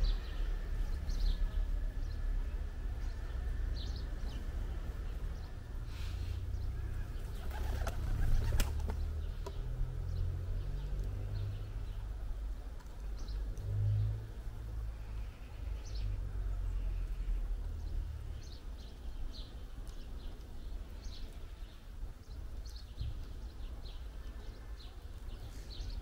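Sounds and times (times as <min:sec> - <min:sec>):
wing flaps: 0:07.3 - 0:09.0.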